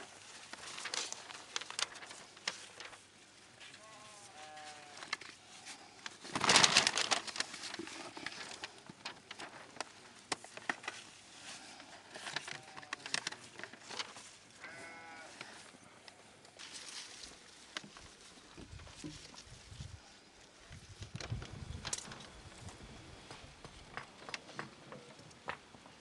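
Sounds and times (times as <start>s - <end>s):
paper rustling: 0.0s - 15.0s
livestock bleating: 3.8s - 5.1s, 14.6s - 15.5s.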